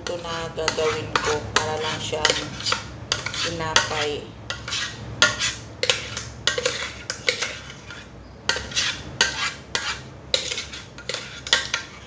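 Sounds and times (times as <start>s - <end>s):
metal spoon scraping metal jug: 0.0s - 12.0s.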